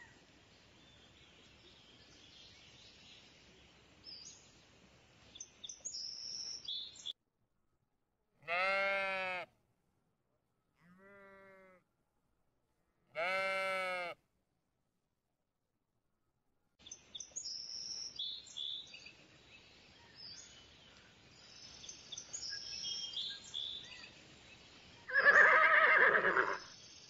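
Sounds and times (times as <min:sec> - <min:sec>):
outdoor background noise: 0:00.0 - 0:27.0
sheep bleating: 0:08.4 - 0:09.5, 0:10.8 - 0:11.8, 0:13.1 - 0:14.2.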